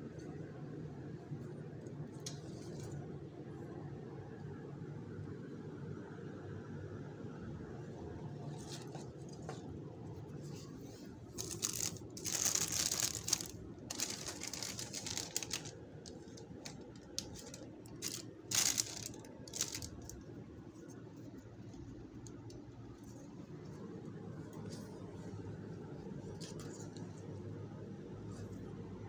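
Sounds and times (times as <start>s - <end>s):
steady low hum: 0.0s - 29.0s
plastic sleeves crinkling: 11.2s - 23.3s, 25.9s - 27.4s
leaves rustling: 11.4s - 15.8s, 17.4s - 20.1s.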